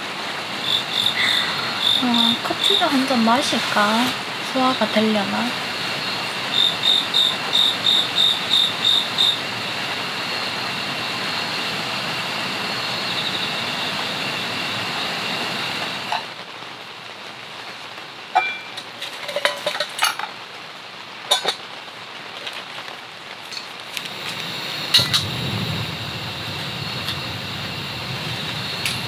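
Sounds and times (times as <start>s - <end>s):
steady rain hiss: 0.0s - 29.0s
insects chirping and trilling: 0.4s - 16.4s, 23.5s - 29.0s
metal cups and pot clinking: 18.3s - 20.4s, 21.3s - 21.6s.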